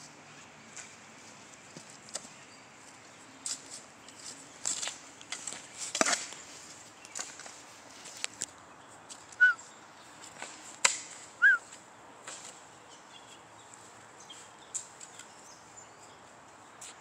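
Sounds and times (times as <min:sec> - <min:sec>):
shovel scraping soil and gravel: 0:03.4 - 0:08.3
bird chirps: 0:08.7 - 0:10.1.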